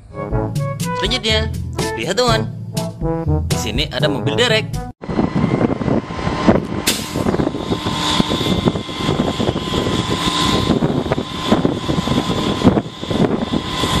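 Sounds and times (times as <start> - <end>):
diesel engine running under load: 5.0 - 14.0.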